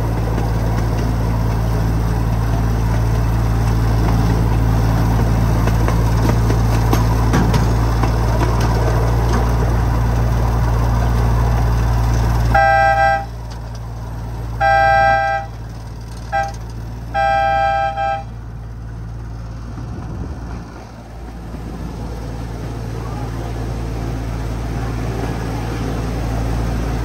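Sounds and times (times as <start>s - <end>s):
small train engine running: 0.0s - 27.0s
two-tone train horn: 12.5s - 13.4s, 14.6s - 15.6s, 16.3s - 18.4s.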